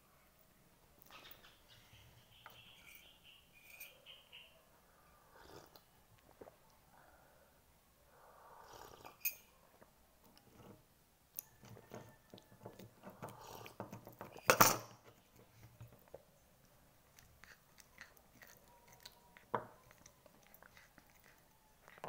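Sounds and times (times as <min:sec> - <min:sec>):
cat chewing: 0:16.6 - 0:22.0.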